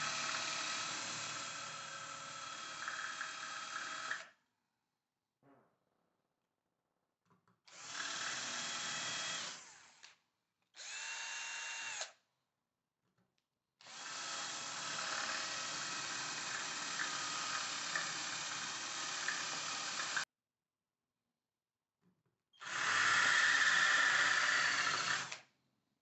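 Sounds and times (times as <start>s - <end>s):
cordless drill drilling: 0.0s - 4.3s, 7.7s - 10.2s, 10.8s - 12.2s, 13.8s - 20.2s, 22.6s - 25.5s.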